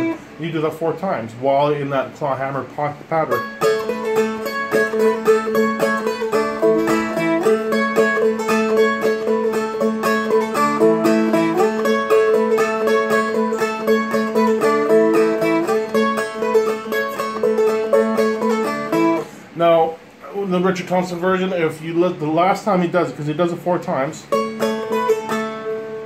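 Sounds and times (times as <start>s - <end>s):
plucked clawhammer melody: 0.0s - 0.4s, 3.1s - 19.6s, 24.2s - 26.0s.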